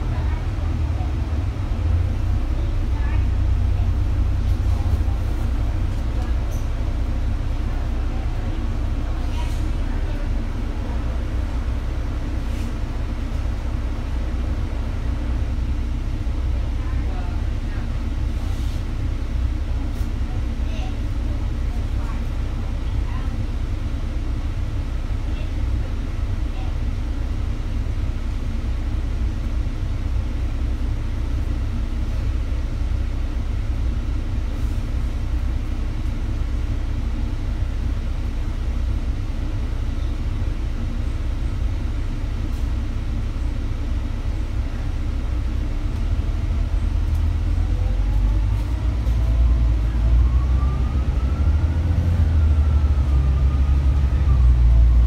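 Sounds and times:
bus engine idling: 0.0 - 55.0
rising engine whine: 43.2 - 55.0.

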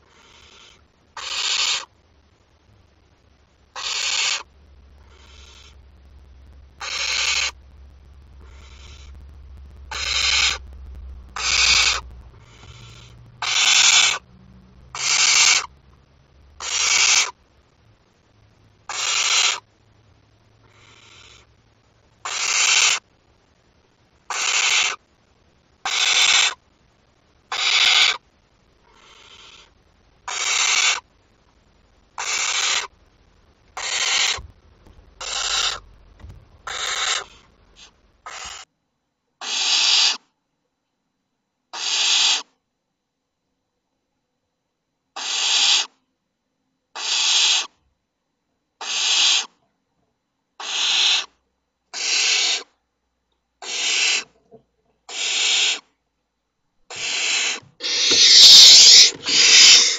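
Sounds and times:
owl chicks hissing begging calls: 0.1 - 1.9, 3.8 - 5.8, 6.8 - 7.6, 8.4 - 9.2, 9.9 - 10.7, 11.4 - 14.2, 14.9 - 15.7, 16.6 - 17.4, 18.9 - 19.6, 20.7 - 21.5, 22.2 - 23.0, 24.3 - 25.0, 25.9 - 26.6, 27.5 - 28.2, 29.0 - 29.7, 30.3 - 31.0, 32.2 - 32.9, 33.8 - 34.4, 35.2 - 35.8, 36.6 - 38.7, 39.4 - 40.2, 41.8 - 42.5, 45.2 - 45.9, 47.0 - 47.7, 48.8 - 49.5, 50.6 - 51.3, 51.9 - 52.7, 53.6 - 54.3, 55.1 - 55.8, 56.9 - 59.9.

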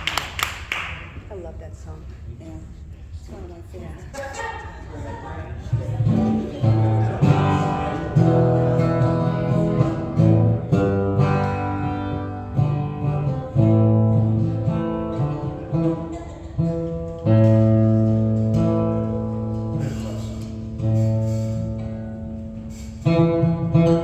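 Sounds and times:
acoustic guitar chords strummed: 5.8 - 24.0.

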